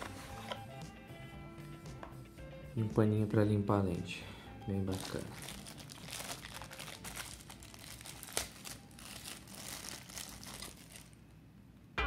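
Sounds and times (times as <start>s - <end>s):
plastic bag crinkling: 4.9s - 11.3s.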